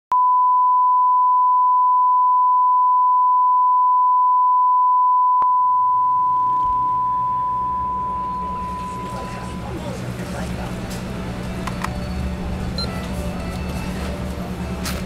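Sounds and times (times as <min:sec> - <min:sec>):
steady reference test tone: 0:05.4 - 0:09.9
low hum: 0:05.4 - 0:12.9.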